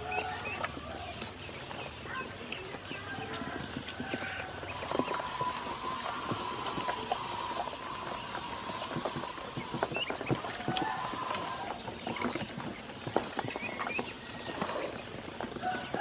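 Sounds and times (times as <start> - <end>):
ducklings splashing in water: 0.0 - 16.0
duckling peeps: 4.2 - 12.6.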